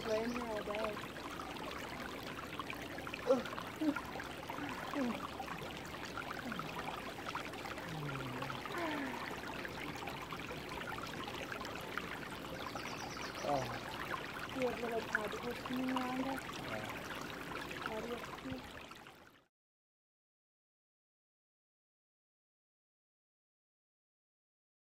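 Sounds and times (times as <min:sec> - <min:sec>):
creek trickling and gurgling: 0:00.0 - 0:19.5.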